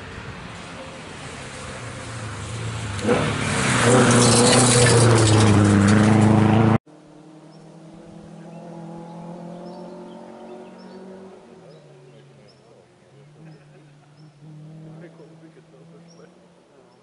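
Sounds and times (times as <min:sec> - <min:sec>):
distant car engine: 0:00.0 - 0:17.0
rally car engine passing at speed: 0:00.0 - 0:17.0
bird chirps: 0:08.4 - 0:14.4.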